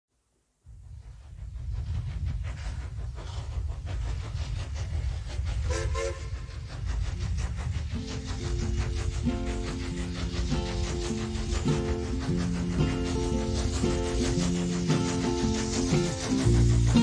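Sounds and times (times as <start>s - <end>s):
steam locomotive chuffing: 0.6s - 17.0s
steam whistle blasts: 5.7s - 6.4s
music: 7.9s - 17.0s.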